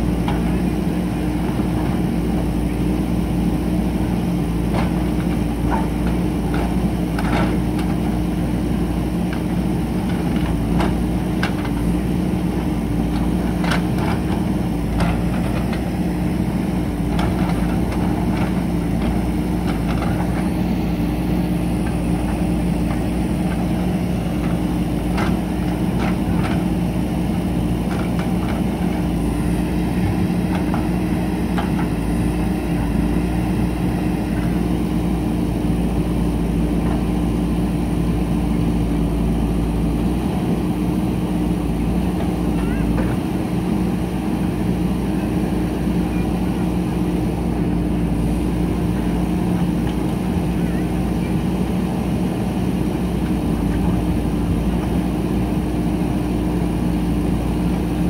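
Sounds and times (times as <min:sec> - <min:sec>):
diesel engine under load: 0:00.0 - 0:58.0.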